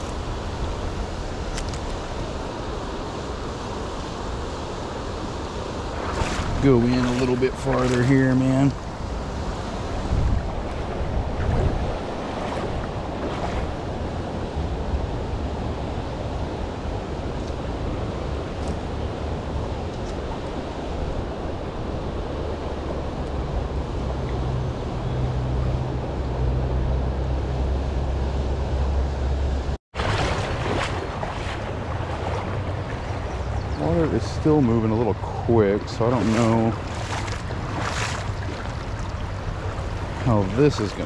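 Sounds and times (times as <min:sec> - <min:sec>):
river running over stones: 0:04.8 - 0:13.8, 0:29.9 - 0:33.1, 0:33.8 - 0:41.0
wind buffeting microphone: 0:05.4 - 0:29.0, 0:30.0 - 0:41.0.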